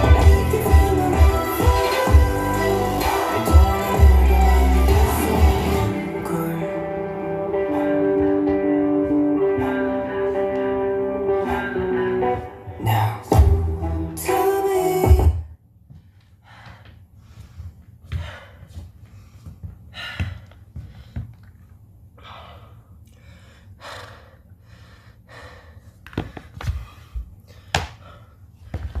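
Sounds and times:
music: 0.0 - 15.4
man panting: 16.4 - 21.4, 22.2 - 29.0.

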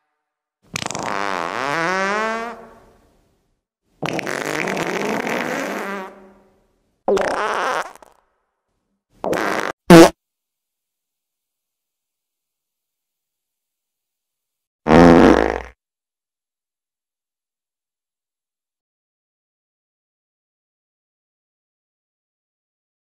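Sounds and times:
fart noises: 0.7 - 3.0, 4.0 - 6.4, 7.1 - 8.2, 9.2 - 10.2, 14.9 - 15.8.

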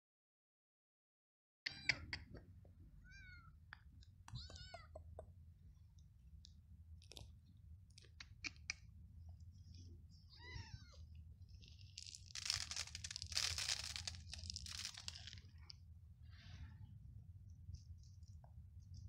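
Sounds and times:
kitten meowing: 1.7 - 2.3, 3.0 - 3.6, 4.3 - 5.2, 10.3 - 11.1
rustling crinkling noise: 11.4 - 15.9.

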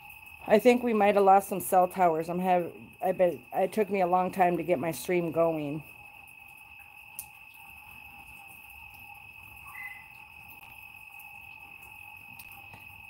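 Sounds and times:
frogs and insects trilling: 0.0 - 13.0
short high chirp: 9.6 - 10.1.

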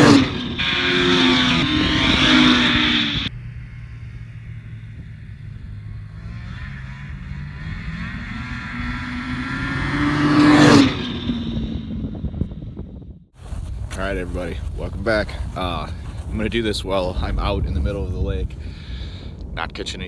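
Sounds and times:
snowmobile engine passing: 0.0 - 12.4.

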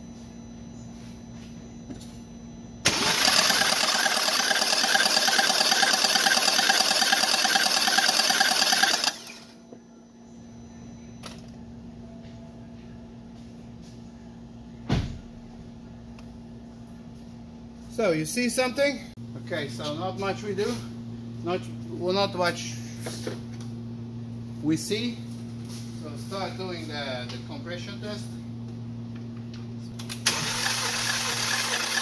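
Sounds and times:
engine starter cranking: 2.9 - 9.4, 30.2 - 32.0.

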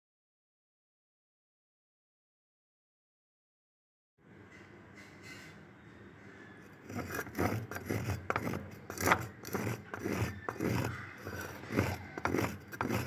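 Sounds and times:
hands mixing flour in a bowl: 7.0 - 13.0.

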